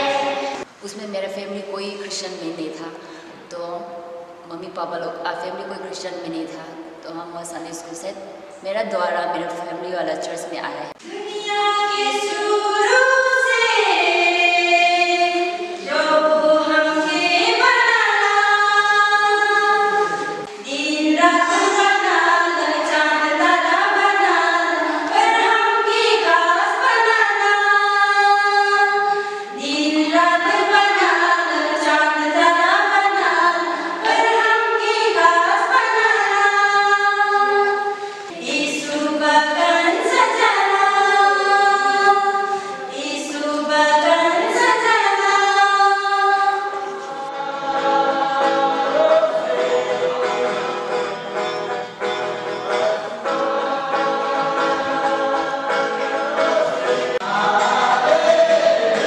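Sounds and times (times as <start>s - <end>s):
women singing a hymn: 0.0s - 1.0s, 1.8s - 51.2s, 52.8s - 59.0s.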